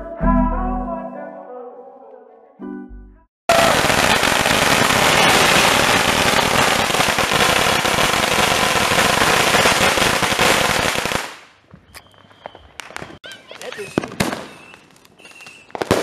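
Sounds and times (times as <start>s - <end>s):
firecracker bangs and crackling: 3.5s - 11.6s, 12.4s - 16.0s.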